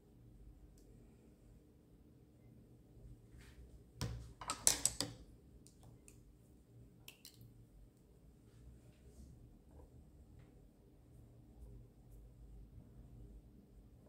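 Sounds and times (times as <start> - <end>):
painting tools clicking and tapping: 4.0 - 6.1.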